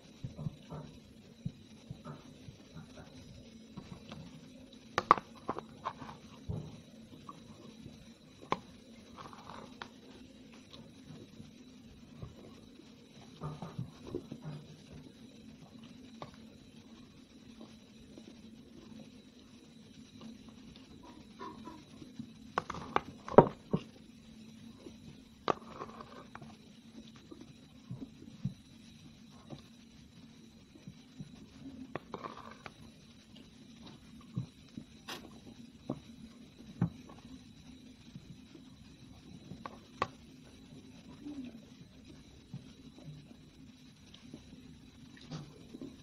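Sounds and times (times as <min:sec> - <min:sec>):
faint steady hum: 0:00.0 - 0:46.0.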